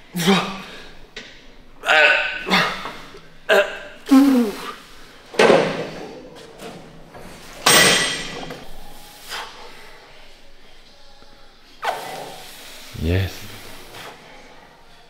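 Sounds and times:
gym weights clanking: 0:07.6 - 0:08.6.

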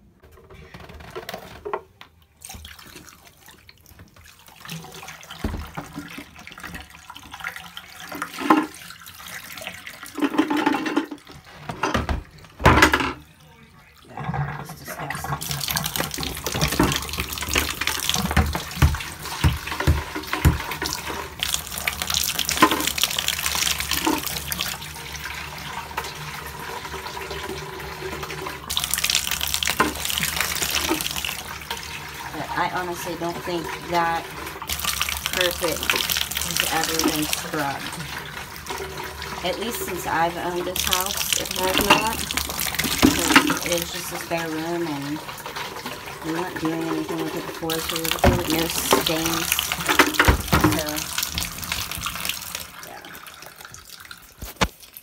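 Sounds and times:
water running from a tap: 0:02.4 - 0:55.0.

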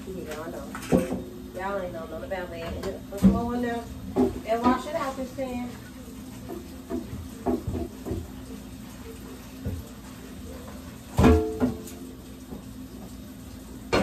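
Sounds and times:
tap water running into sink: 0:02.6 - 0:14.0
pot knocking against sink: 0:06.5 - 0:08.4, 0:11.1 - 0:12.7.

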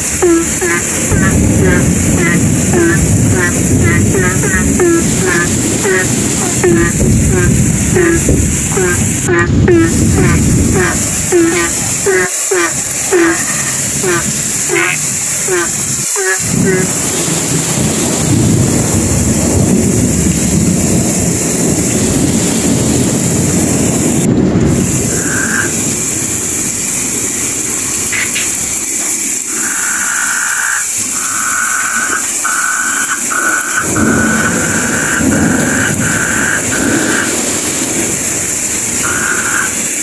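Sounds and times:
frogs calling: 0:00.0 - 0:17.1, 0:25.0 - 0:26.2, 0:29.2 - 0:40.0
low rumbling thunder: 0:00.0 - 0:29.6, 0:30.9 - 0:40.0
heavy rain pouring: 0:00.0 - 0:40.0.

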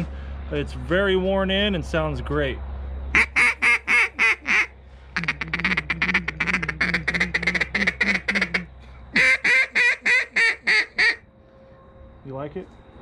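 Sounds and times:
duck call quacks: 0:03.1 - 0:11.2.

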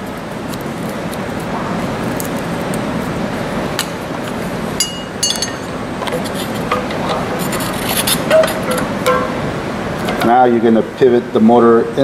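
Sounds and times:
light metallic clinks: 0:04.8 - 0:05.8.

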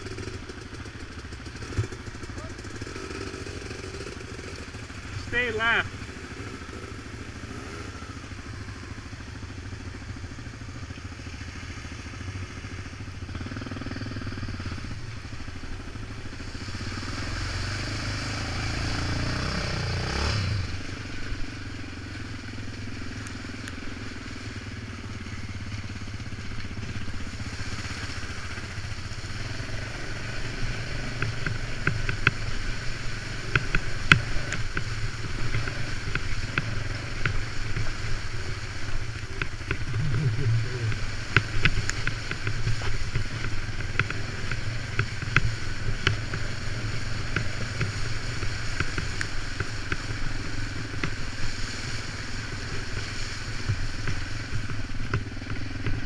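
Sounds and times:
quad bike engine revving: 0:00.0 - 0:56.0
splashing through water: 0:16.4 - 0:56.0.

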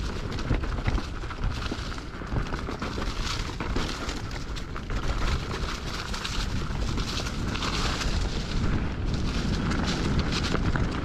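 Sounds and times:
bike rattling over bumps: 0:00.0 - 0:11.0
tyres crunching through dry leaves: 0:00.0 - 0:11.0
low rumble: 0:06.3 - 0:11.0.

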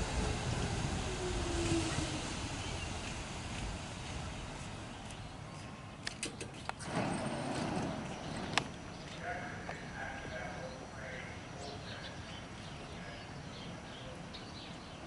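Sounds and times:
subway train rumble and hiss: 0:00.0 - 0:15.0.

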